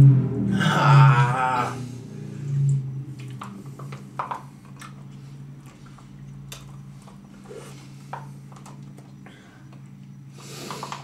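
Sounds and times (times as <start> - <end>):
steady low hum: 0.0 - 11.0
plastic spoons scraping cups: 10.4 - 11.0.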